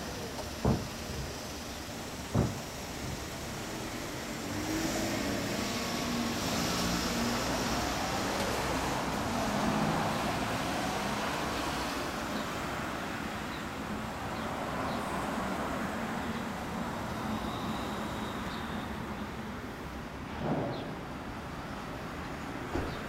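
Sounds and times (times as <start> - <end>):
noisy hiss: 0.0 - 23.0.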